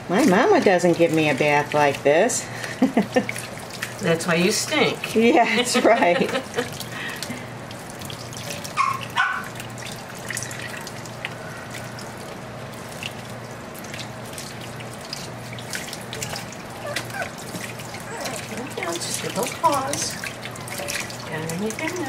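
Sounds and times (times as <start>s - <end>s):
water splashing and dripping: 0.0s - 22.0s
faucet running into sink: 0.2s - 22.0s
puppy crying: 8.7s - 9.5s, 16.1s - 18.6s.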